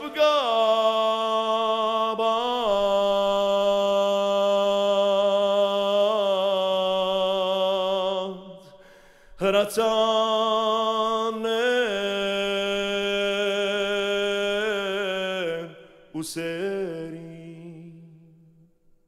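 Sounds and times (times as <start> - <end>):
man singing long notes: 0.0 - 8.7.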